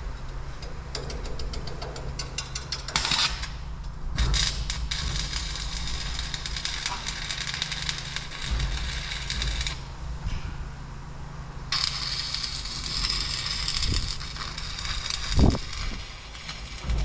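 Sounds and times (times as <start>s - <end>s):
arc welding crackling sizzle: 0.0s - 10.3s, 11.7s - 17.0s.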